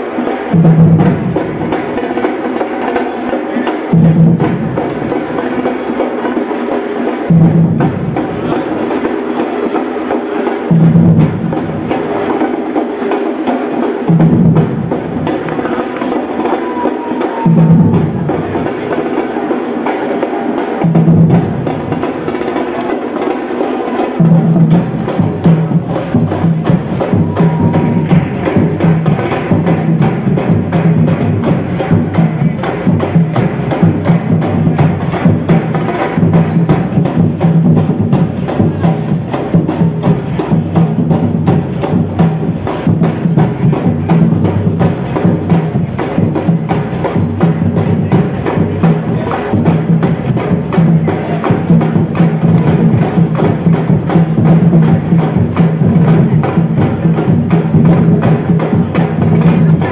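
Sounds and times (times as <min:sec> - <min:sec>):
street percussion group drumming: 0:00.0 - 0:59.9
deep low drums: 0:24.2 - 0:59.9.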